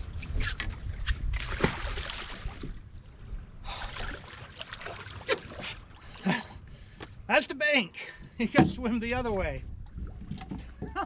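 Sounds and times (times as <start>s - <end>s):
wind rumbling on microphone: 0.0s - 4.2s, 8.2s - 11.0s
water splashing: 1.3s - 2.8s, 3.7s - 6.4s.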